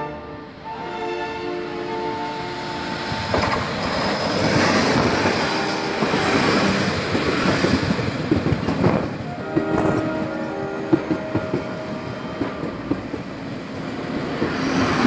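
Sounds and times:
train wheels clattering on rails: 3.2s - 15.0s.

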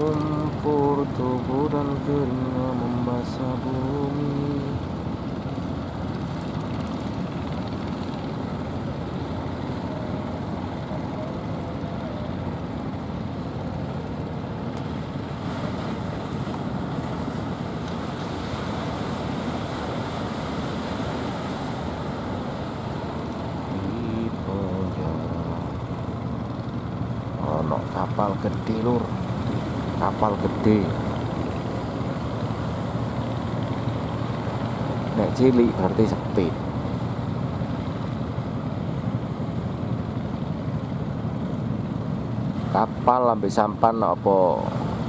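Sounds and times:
boat engines running: 0.0s - 45.0s
small surf washing in: 14.1s - 40.4s.

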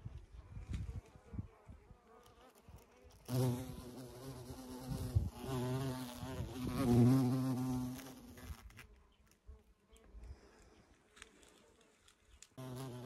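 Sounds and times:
flying insect buzzing: 1.3s - 9.1s, 12.6s - 13.0s.

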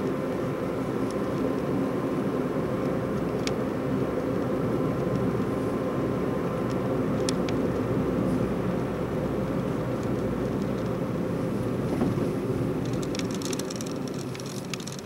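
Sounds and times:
car cabin road and engine noise: 0.0s - 15.0s.

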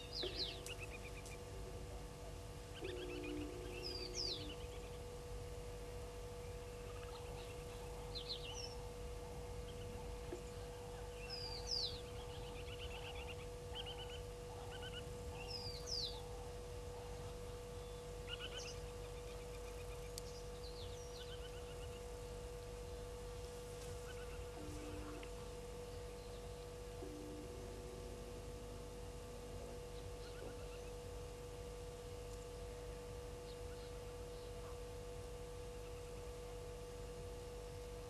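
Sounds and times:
birds chattering: 0.0s - 5.2s, 6.4s - 28.2s
faint hum: 0.0s - 38.0s.

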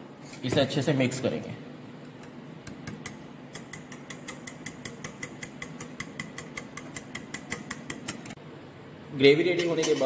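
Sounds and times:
wire whisk clicking against bowl: 2.8s - 8.3s.

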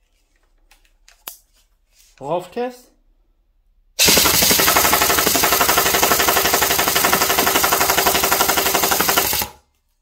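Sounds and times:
airsoft gun full-auto rattle: 4.0s - 9.7s.

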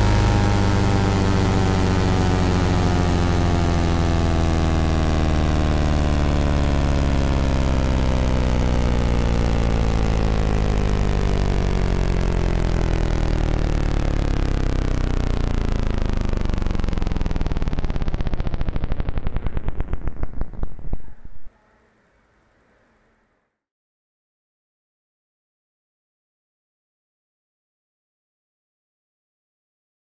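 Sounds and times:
higher tones gliding down: 0.0s - 22.0s
low electronic hum: 0.0s - 23.2s.

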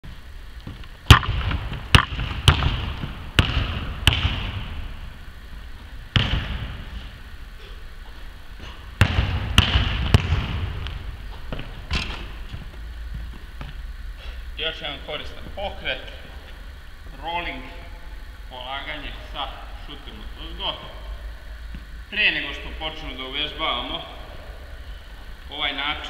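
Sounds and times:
basketball bouncing on hardwood: 0.6s - 4.7s, 6.1s - 6.8s, 9.0s - 13.8s.

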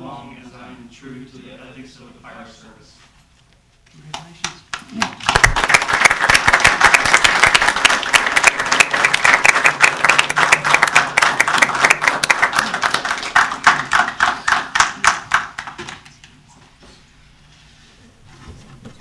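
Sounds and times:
audience applauding: 4.7s - 16.2s.

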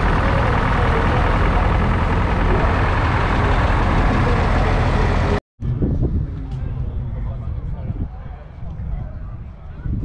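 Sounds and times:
tractor diesel engine running: 0.0s - 5.4s.

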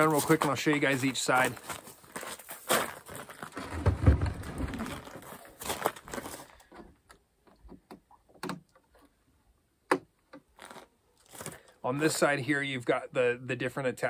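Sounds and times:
heavy object scraping on truck bed: 3.6s - 5.0s.

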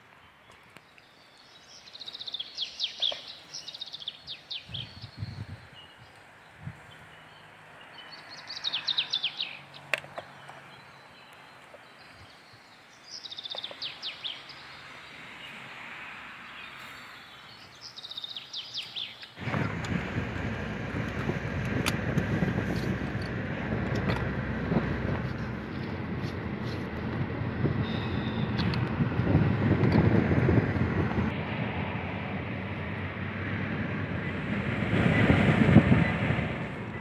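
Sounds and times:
birds chirping: 0.0s - 15.7s, 16.4s - 21.5s, 27.6s - 28.9s
wind noise: 4.2s - 7.1s, 19.4s - 37.0s
vehicle travelling on road: 4.6s - 11.9s, 13.6s - 17.8s, 19.0s - 37.0s.

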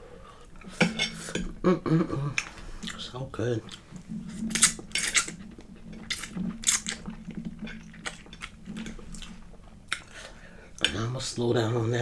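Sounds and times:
chewing with wet mouth smacks: 3.6s - 11.0s.

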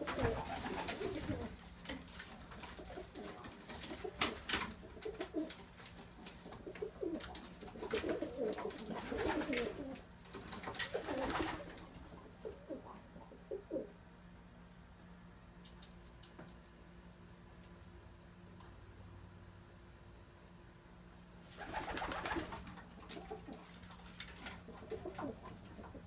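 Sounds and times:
pigeons cooing: 0.0s - 1.8s, 2.6s - 14.0s, 24.5s - 26.0s.

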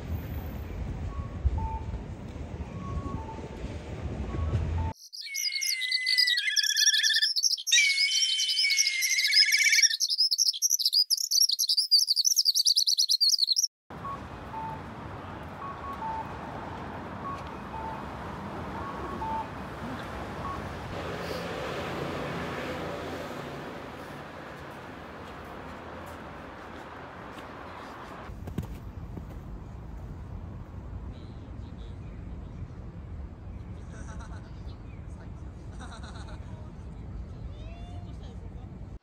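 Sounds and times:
city street traffic noise: 0.0s - 5.0s, 13.9s - 39.0s
birds chirping and trilling: 5.0s - 13.7s.

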